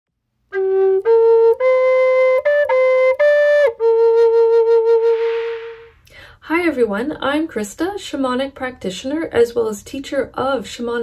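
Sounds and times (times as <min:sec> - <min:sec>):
wooden flute melody: 0:00.5 - 0:06.0.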